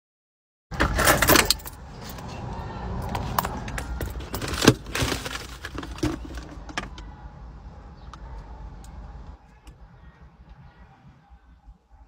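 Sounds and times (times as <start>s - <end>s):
objects handled inside a car: 0.7s - 7.2s.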